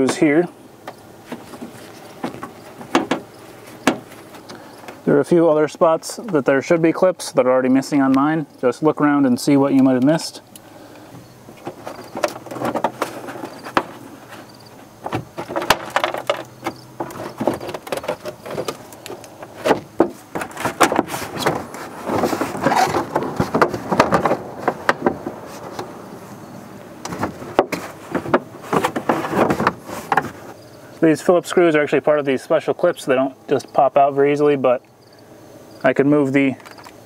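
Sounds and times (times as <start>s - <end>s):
plastic liner creaking and scraping: 0.0s - 5.2s, 10.9s - 26.0s, 27.0s - 30.6s.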